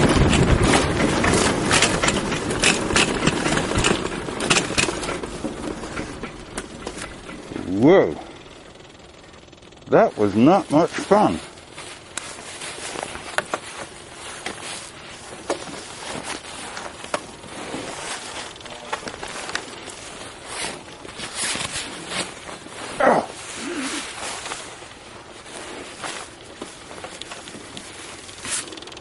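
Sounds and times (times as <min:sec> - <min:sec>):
camera rustling against clothing: 0:10.2 - 0:29.0.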